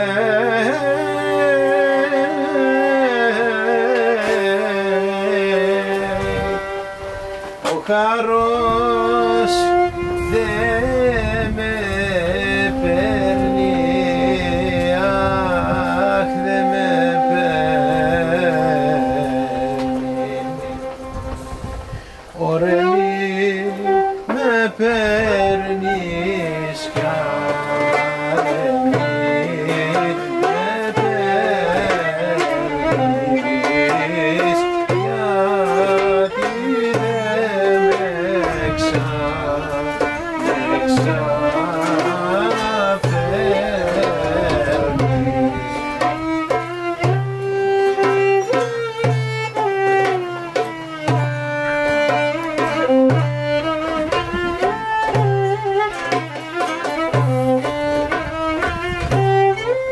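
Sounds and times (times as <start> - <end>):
lute: 0.0 - 59.9
violin melody: 0.0 - 59.9
hand percussion: 26.2 - 59.9.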